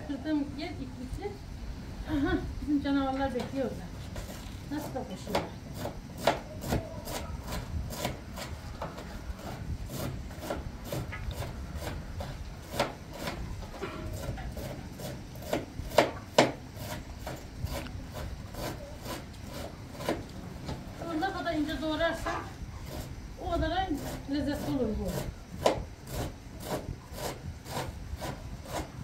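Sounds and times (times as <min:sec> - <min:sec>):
knife chopping on wooden board: 0:05.3 - 0:08.5, 0:10.4 - 0:17.8, 0:25.6 - 0:25.9.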